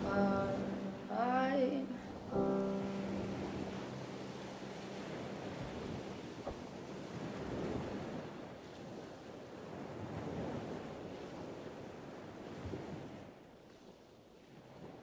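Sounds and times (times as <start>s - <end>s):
surf breaking over rocks: 0.0s - 8.9s.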